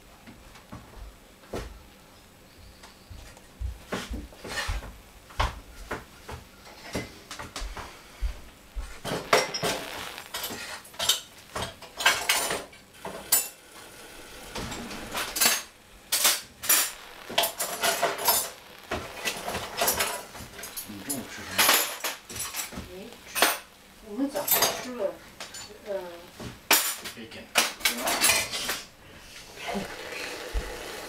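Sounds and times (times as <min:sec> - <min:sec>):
dishes and utensils clattering: 0:09.0 - 0:13.6, 0:24.4 - 0:25.7, 0:26.7 - 0:28.9.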